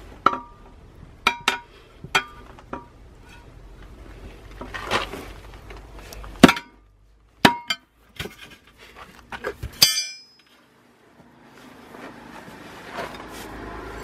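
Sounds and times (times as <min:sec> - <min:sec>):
sharp metallic knocks: 0:00.2 - 0:03.0, 0:06.4 - 0:06.8, 0:07.4 - 0:07.9, 0:09.8 - 0:10.5.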